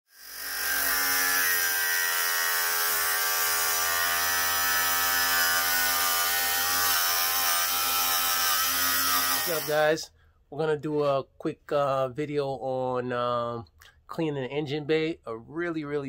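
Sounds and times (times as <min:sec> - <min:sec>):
angle grinder grinding metal: 0:00.1 - 0:09.9.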